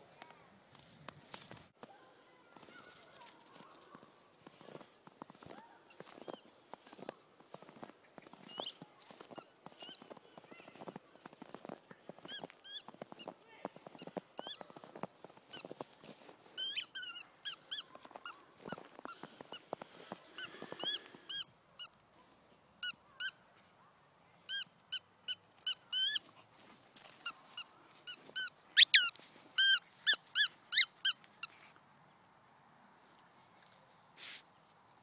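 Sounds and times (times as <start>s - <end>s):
soft crunching: 0.1s - 22.2s, 24.8s - 31.8s
squeaky dog toy squeaking: 12.3s - 12.9s, 14.0s - 14.6s, 16.6s - 18.0s, 20.8s - 21.9s, 24.5s - 26.2s, 27.6s - 31.2s.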